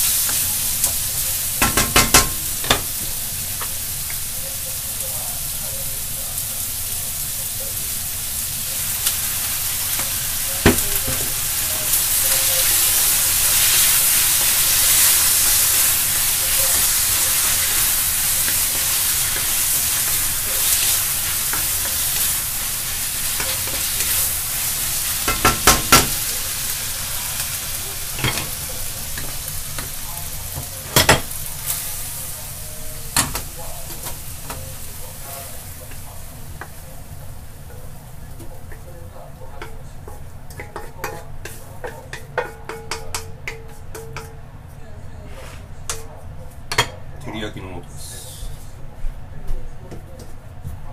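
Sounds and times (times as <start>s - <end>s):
onions and meat sizzling in wok: 0.0s - 48.9s
spatula knocking against wok: 1.6s - 2.9s, 39.6s - 44.4s.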